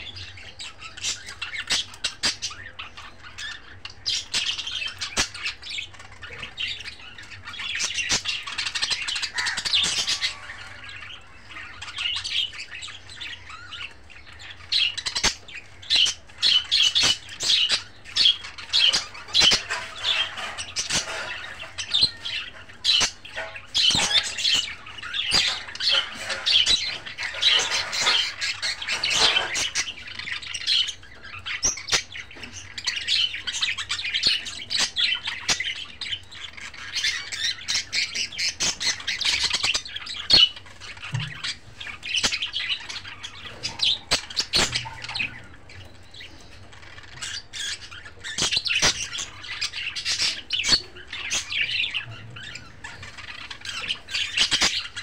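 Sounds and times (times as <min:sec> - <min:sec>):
budgerigars chirping and squawking: 0:00.0 - 0:55.0.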